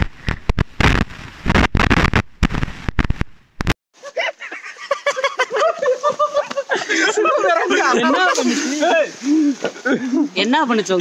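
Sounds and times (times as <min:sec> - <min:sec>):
faint river rush: 0:04.0 - 0:10.9.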